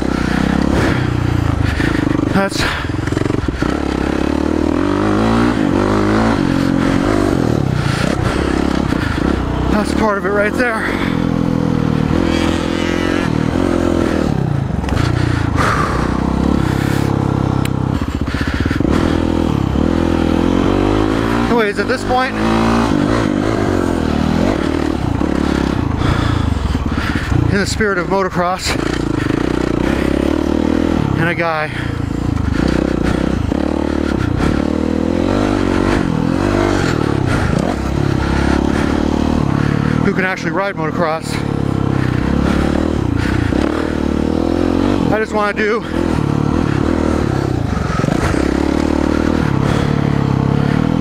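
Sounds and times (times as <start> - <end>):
motocross engine revving: 0.0 - 51.0.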